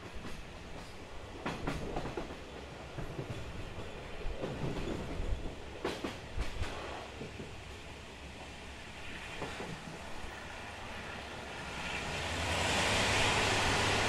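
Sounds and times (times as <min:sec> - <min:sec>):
clacks over rail joints: 0:00.0 - 0:07.6
train wheel and rail rumble: 0:00.0 - 0:14.0.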